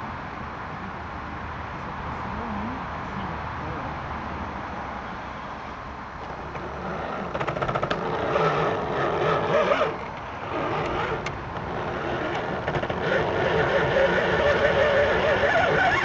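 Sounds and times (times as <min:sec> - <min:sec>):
toy car motor and gears: 0:06.6 - 0:16.0.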